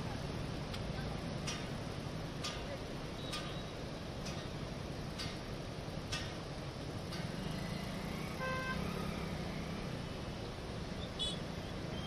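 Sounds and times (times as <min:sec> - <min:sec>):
traffic noise: 0:00.0 - 0:12.0
vehicle horn toot: 0:08.4 - 0:08.8.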